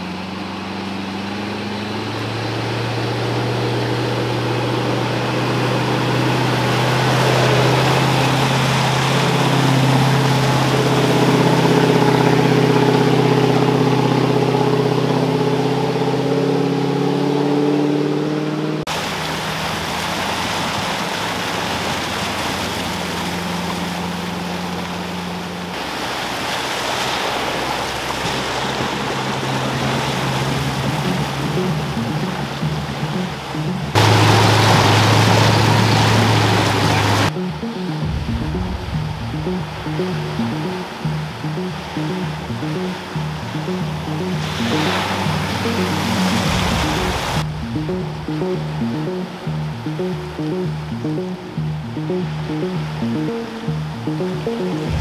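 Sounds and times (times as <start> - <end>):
off-road vehicle engine pulling: 0.0 - 37.3
water rushing and splashing: 0.0 - 55.0.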